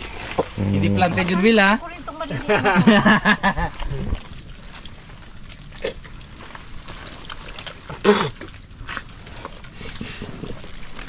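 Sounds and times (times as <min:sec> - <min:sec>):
hands stirring mud and water: 0:00.0 - 0:11.0
small splashes and squelches: 0:03.6 - 0:11.0.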